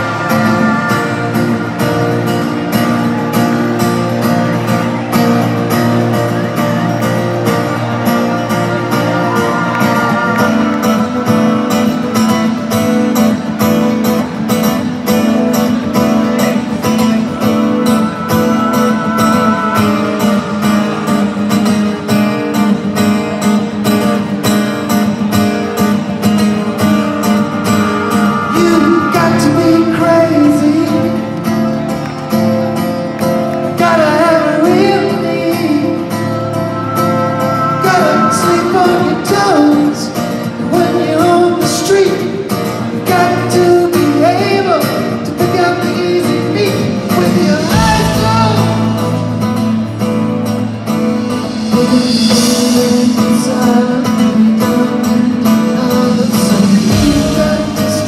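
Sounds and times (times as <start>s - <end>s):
rock band chords: 0.0s - 58.0s
strummed acoustic guitar: 0.0s - 58.0s
lead vocal singing: 8.6s - 12.6s, 17.1s - 21.1s, 27.8s - 31.2s, 33.7s - 49.4s, 51.5s - 58.0s.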